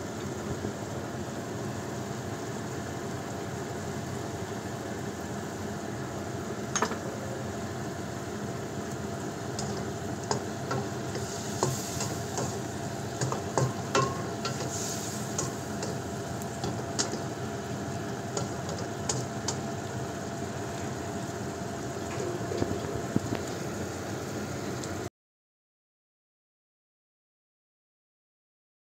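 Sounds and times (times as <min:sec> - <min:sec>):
beans sizzling in a wok: 0:00.0 - 0:25.1
spatula scraping a pan: 0:09.6 - 0:16.0.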